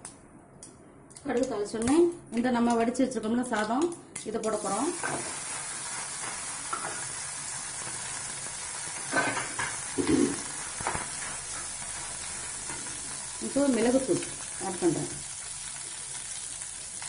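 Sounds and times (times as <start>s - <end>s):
rice sizzling in hot oil: 4.5s - 17.0s
spoon knocking and scraping pan: 9.0s - 11.8s.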